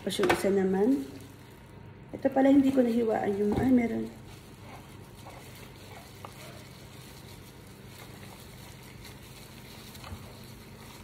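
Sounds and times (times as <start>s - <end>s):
plastic gloves rustling: 0.0s - 11.0s
wet squishing of chicken: 4.1s - 11.0s.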